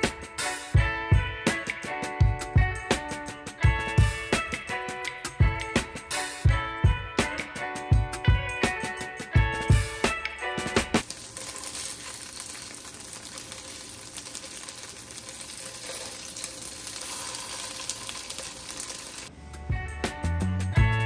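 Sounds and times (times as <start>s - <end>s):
music: 0.0s - 11.1s, 14.4s - 21.0s
tofu sizzling in oil: 11.0s - 19.3s.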